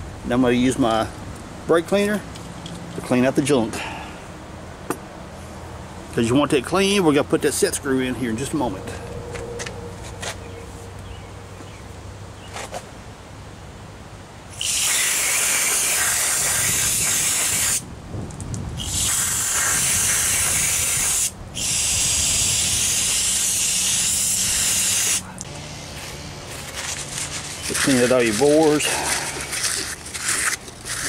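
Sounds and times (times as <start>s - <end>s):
aerosol spray hissing: 14.6s - 17.8s, 18.8s - 25.2s.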